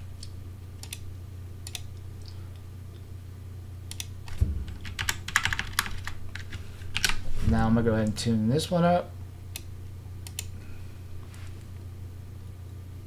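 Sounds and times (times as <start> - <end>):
low steady hum: 0.0 - 13.0
keyboard typing: 4.7 - 7.2.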